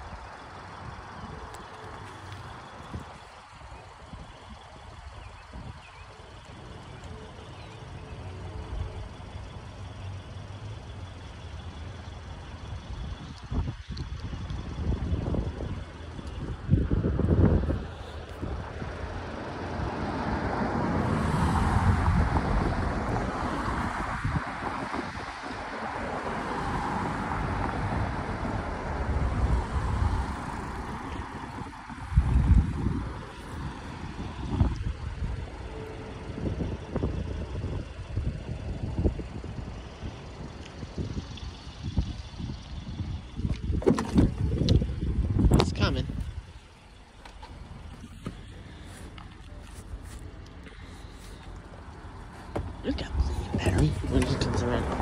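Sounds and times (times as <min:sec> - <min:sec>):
diesel locomotive engine rumbling: 0:00.0 - 0:55.0
wind on microphone: 0:13.0 - 0:20.0, 0:21.4 - 0:25.8, 0:26.8 - 0:35.6, 0:36.3 - 0:46.5
train rumbling: 0:46.6 - 0:55.0.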